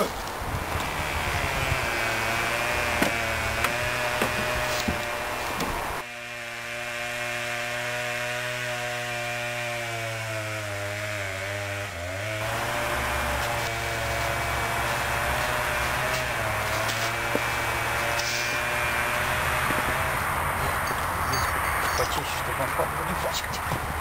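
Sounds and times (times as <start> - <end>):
chainsaw engine running: 0.6 - 23.5.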